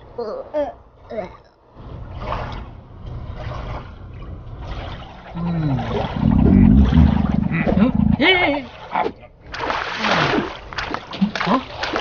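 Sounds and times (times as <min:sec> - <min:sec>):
water washing around boat: 0:02.0 - 0:12.0
cartoon stomach growl: 0:05.4 - 0:08.3
falling moan: 0:05.4 - 0:08.3.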